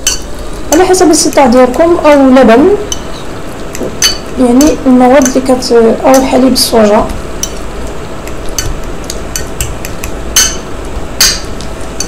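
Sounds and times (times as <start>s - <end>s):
fork clinking against bowl: 0.0s - 0.3s, 4.0s - 5.4s, 7.4s - 7.6s, 8.5s - 11.5s
steady low hum: 0.0s - 12.0s.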